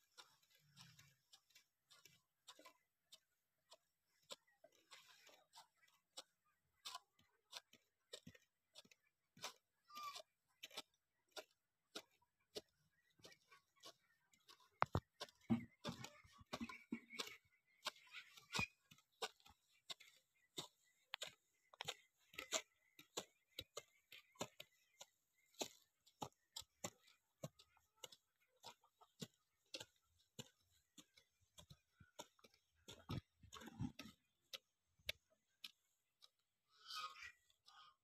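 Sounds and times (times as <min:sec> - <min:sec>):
hoes chopping into dry soil: 0:00.0 - 0:36.6.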